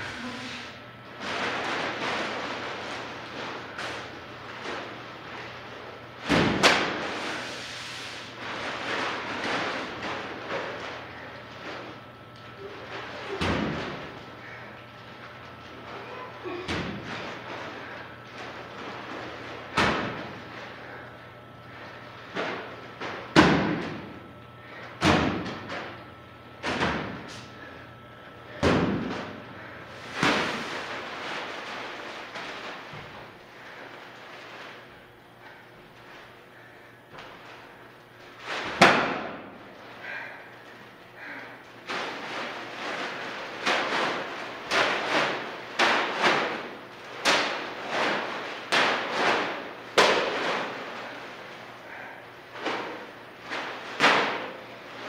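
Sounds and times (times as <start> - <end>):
heavy bags thudding onto floor: 16.4 - 21.0, 28.5 - 35.6
heavy plastic bags thudding on floor: 16.4 - 21.0, 28.5 - 34.9, 41.2 - 55.0.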